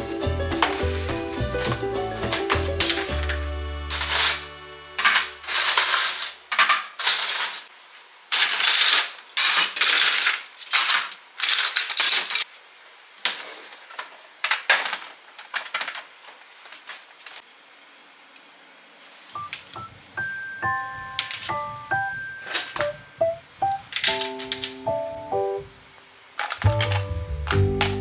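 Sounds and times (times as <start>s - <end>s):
metal cookie cutters clinking: 3.9s - 7.6s, 8.3s - 12.4s, 21.2s - 21.6s.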